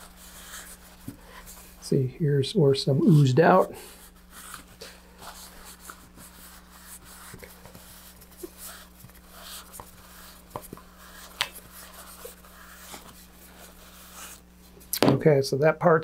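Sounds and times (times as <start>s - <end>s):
faint steady hum: 0.0s - 16.0s
paper towel rubbing: 2.9s - 14.5s.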